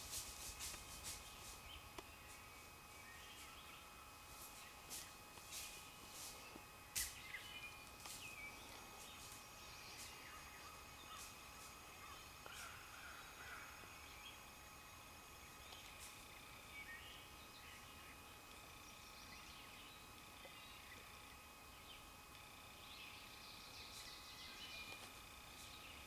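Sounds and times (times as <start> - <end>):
faint bird chirps: 1.1 - 14.5.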